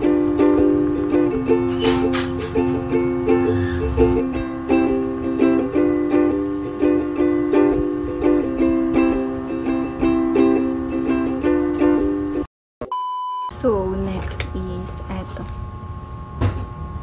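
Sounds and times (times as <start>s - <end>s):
plucked-string tune with beat: 0.0s - 12.2s.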